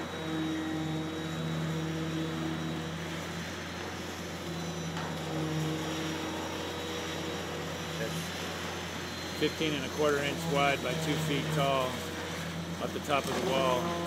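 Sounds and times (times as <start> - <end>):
concrete pump engine drone: 0.0 - 14.0
concrete vibrator hum: 0.0 - 14.0.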